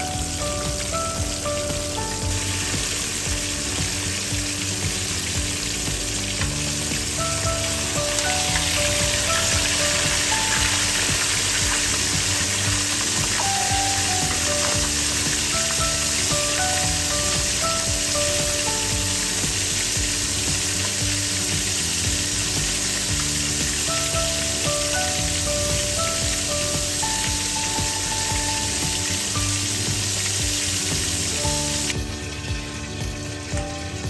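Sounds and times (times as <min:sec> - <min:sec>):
fish sizzling in hot oil: 0:00.0 - 0:34.0.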